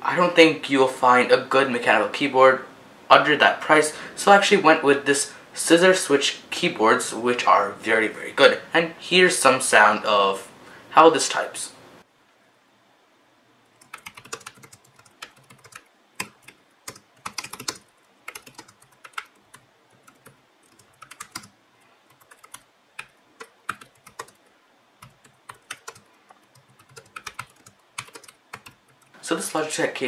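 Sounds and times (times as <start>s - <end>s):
keyboard keys clicking: 13.8s - 21.5s, 22.1s - 24.4s, 25.0s - 29.1s.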